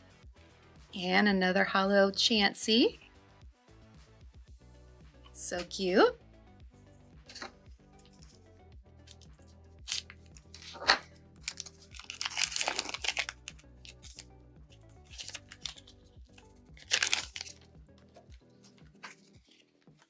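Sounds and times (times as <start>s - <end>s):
soft background music: 0.0s - 20.0s
foil wrapper crinkling and tearing: 9.1s - 14.2s, 15.1s - 17.7s.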